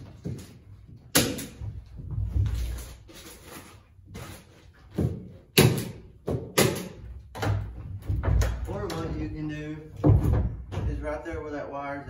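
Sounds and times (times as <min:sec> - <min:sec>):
sharp knocks: 0:10.0 - 0:11.2.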